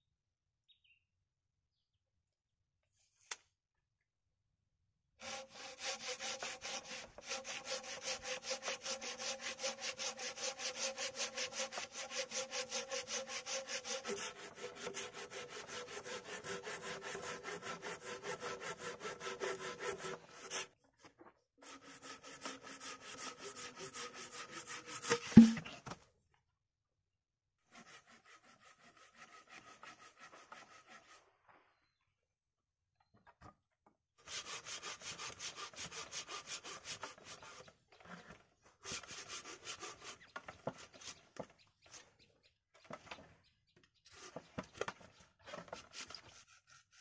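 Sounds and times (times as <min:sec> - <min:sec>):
hand saw cutting log: 0:05.2 - 0:20.8, 0:21.6 - 0:25.8, 0:27.6 - 0:31.3, 0:34.2 - 0:42.0, 0:44.1 - 0:47.0
sharp loud knock: 0:25.1 - 0:25.7.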